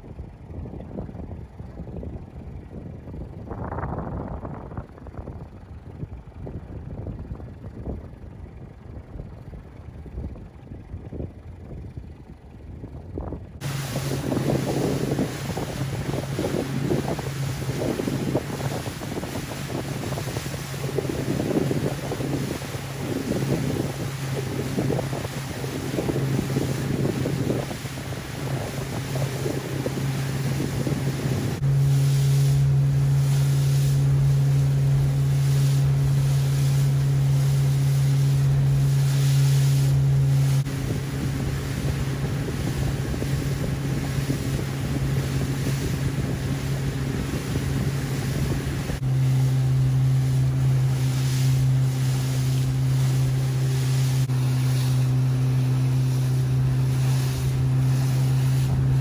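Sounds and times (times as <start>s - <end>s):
boat engine drone: 0.0s - 59.0s
wind buffeting microphone: 0.0s - 59.0s
water splashing: 13.6s - 59.0s.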